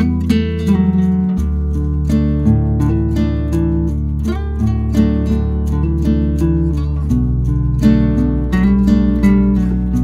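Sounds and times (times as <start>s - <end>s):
plucked string instrument music: 0.0s - 10.0s.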